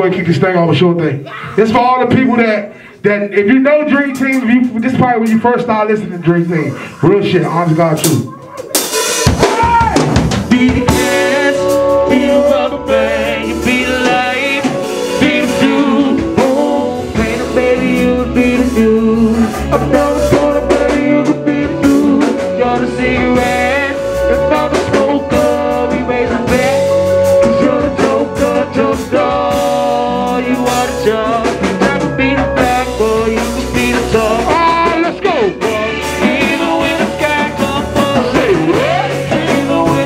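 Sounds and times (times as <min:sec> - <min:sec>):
band playing: 0:00.0 - 0:40.0
man singing into a microphone: 0:10.5 - 0:40.0.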